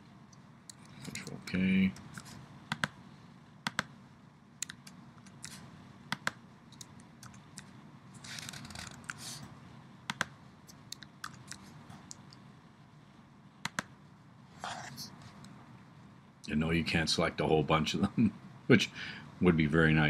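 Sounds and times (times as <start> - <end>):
computer mouse clicks: 1.9 - 3.0, 3.6 - 3.9, 4.6 - 7.7, 10.1 - 12.4, 13.6 - 13.9.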